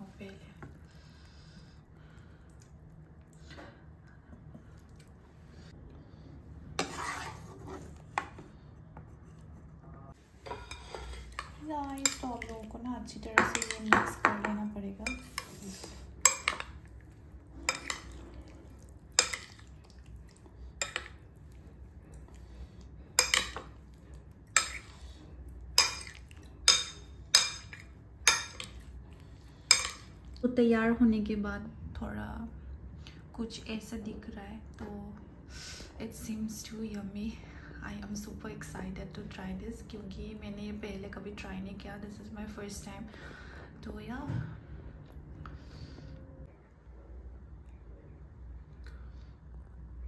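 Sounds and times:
low steady hum: 0.0s - 50.0s
spoon scraping a wok: 6.8s - 8.4s, 10.4s - 12.5s, 17.6s - 18.4s.

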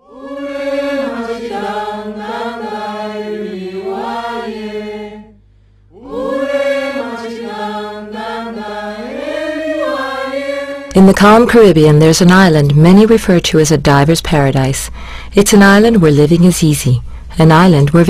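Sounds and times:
chanted vocal music: 0.0s - 11.0s.

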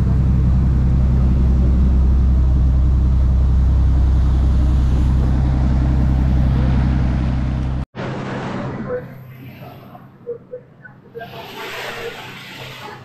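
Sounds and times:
churning wake rushing: 0.0s - 9.9s
boat engine humming: 0.0s - 13.0s.

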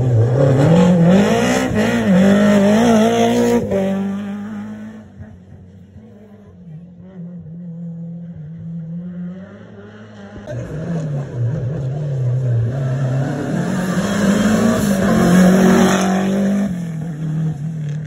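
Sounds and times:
rally car approaching with gear changes: 0.0s - 18.0s
rally car engine: 0.0s - 18.0s.

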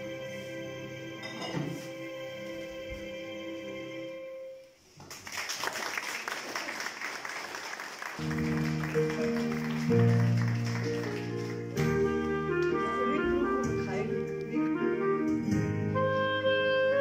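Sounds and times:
audience applause: 5.0s - 11.8s
held instrumental chords: 8.2s - 17.0s
clarinet held note: 11.8s - 17.0s.

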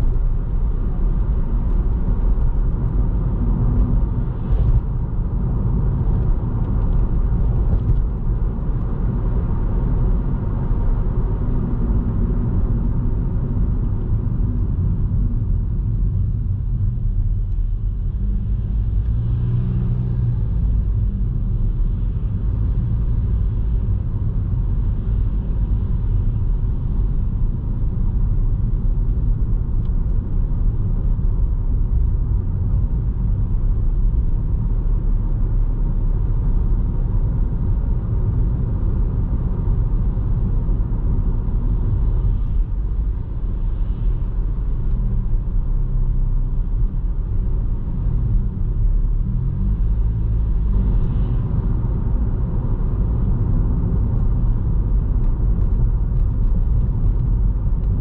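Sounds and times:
car driving road rumble: 0.0s - 58.0s.

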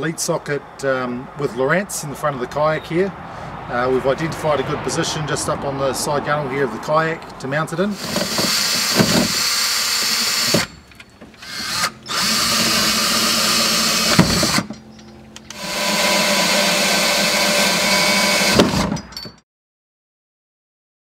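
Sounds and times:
cordless drill boring into plastic: 7.9s - 10.7s, 11.4s - 14.7s, 15.5s - 18.9s.

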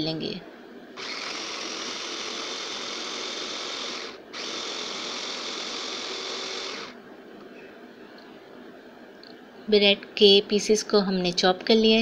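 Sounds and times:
electric food chopper running: 1.0s - 7.0s.

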